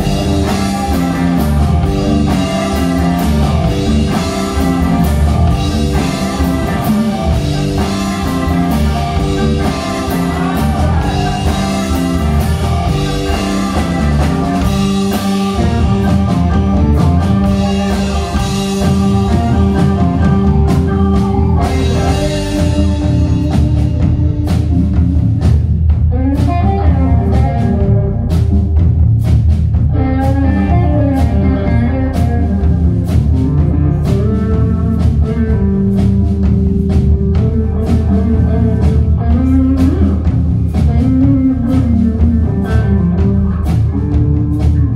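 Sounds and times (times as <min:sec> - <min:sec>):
keyboard: 0:00.0 - 0:29.1
bass guitar: 0:00.0 - 0:44.9
drum kit: 0:00.0 - 0:44.9
electric guitar: 0:00.0 - 0:44.9.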